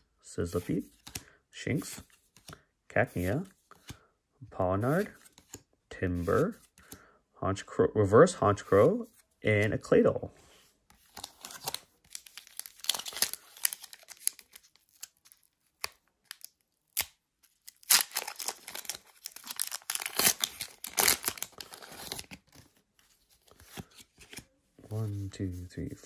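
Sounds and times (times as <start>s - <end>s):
foil wrapper crinkling and tearing: 11.2s - 22.4s.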